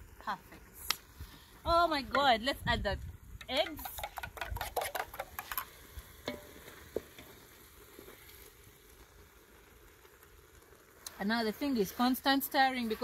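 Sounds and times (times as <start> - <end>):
eggs sizzling in a saucepan: 0.0 - 13.0
spoon scraping metal pot: 3.7 - 5.7.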